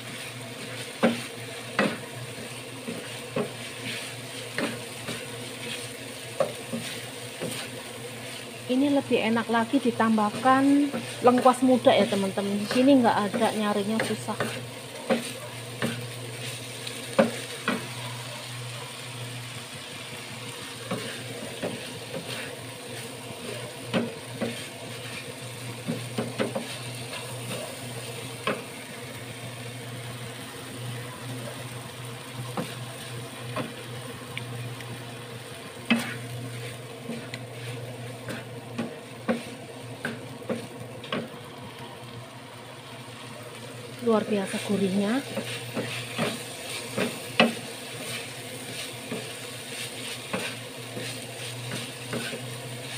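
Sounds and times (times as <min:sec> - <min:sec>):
wooden spatula scraping pan: 0:00.0 - 0:17.9, 0:20.8 - 0:27.8, 0:44.5 - 0:52.9
food sizzling in oil: 0:00.0 - 0:52.9
spatula knocking against pan: 0:17.1 - 0:17.9.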